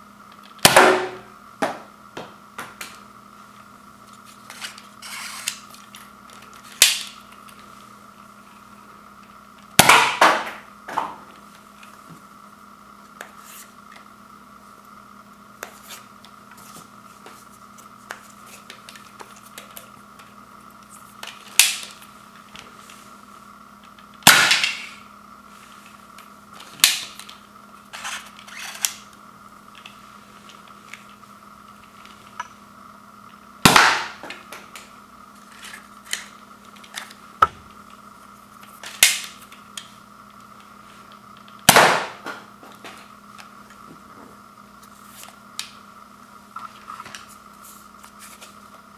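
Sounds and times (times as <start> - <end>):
toy blaster plastic snaps: 21.5 - 22.0, 38.8 - 39.9.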